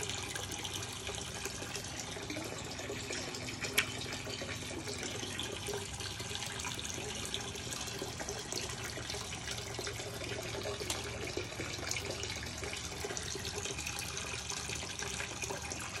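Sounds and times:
aquarium water trickling and splashing: 0:00.0 - 0:16.0
small bubbling ticks: 0:00.2 - 0:06.3, 0:08.0 - 0:13.9.

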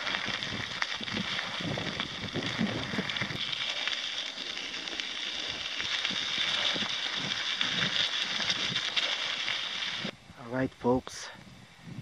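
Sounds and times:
bike tyres crunching on gravel: 0:00.0 - 0:10.2.

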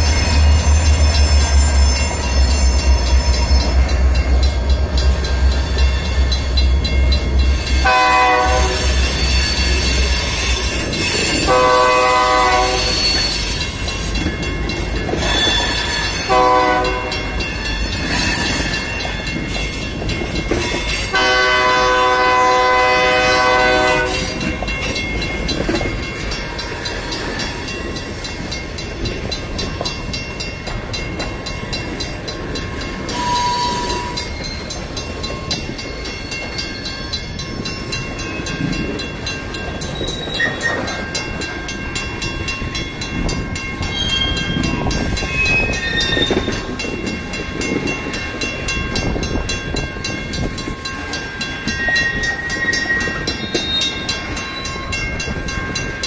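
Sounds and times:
crossing bell ringing: 0:00.0 - 0:56.0
train wheels clicking over rail joints: 0:00.0 - 0:56.0
train horn blasts: 0:07.8 - 0:09.0, 0:11.4 - 0:13.4, 0:16.2 - 0:17.4, 0:21.1 - 0:24.4, 0:33.1 - 0:34.2.

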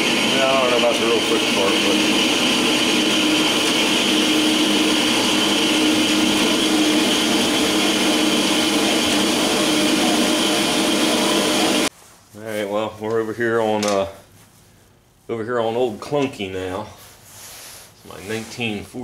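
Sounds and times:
band saw cutting metal bar: 0:00.0 - 0:11.9.

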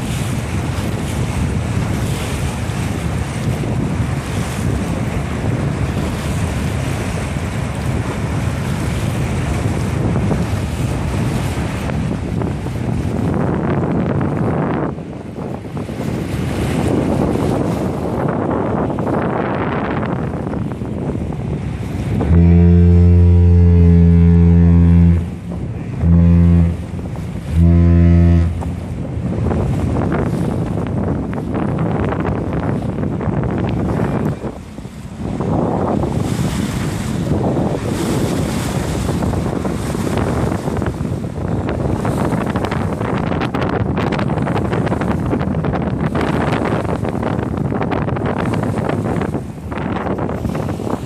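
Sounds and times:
rushing open water: 0:00.0 - 0:51.0
wind buffeting microphone: 0:00.0 - 0:51.0
ship's horn blasts: 0:16.5 - 0:51.0.

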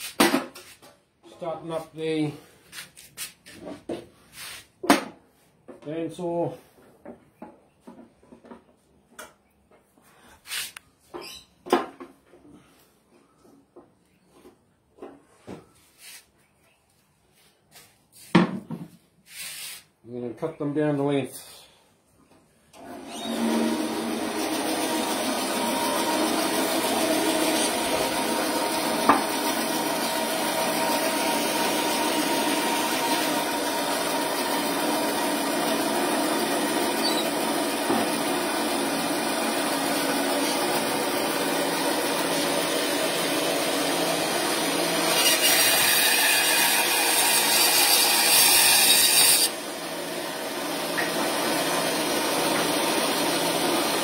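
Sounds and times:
electric bandsaw running: 0:22.8 - 0:54.0.

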